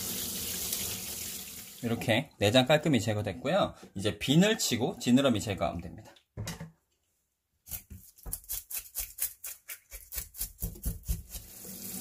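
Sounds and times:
knife scraping fish scales: 7.6s - 11.6s.

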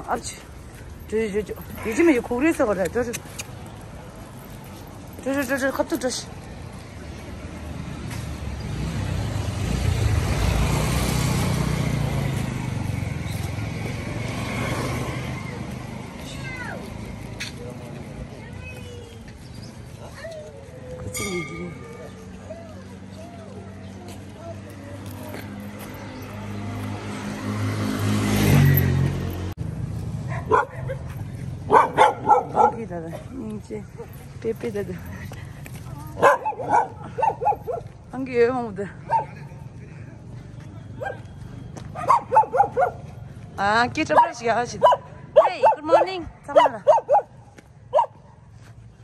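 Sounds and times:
vehicle passing: 0.0s - 49.0s
vehicle driving past: 7.4s - 18.3s, 21.2s - 32.4s
dog barking: 30.3s - 32.9s, 36.2s - 37.9s, 39.1s - 39.4s, 41.0s - 41.2s, 41.9s - 43.1s, 44.1s - 48.4s.

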